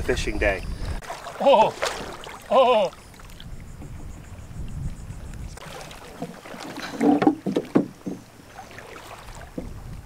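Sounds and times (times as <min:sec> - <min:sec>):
wind rumble on microphone: 0:00.0 - 0:01.0, 0:03.3 - 0:05.6, 0:09.2 - 0:10.0
shallow water sloshing and splashing: 0:00.8 - 0:10.0.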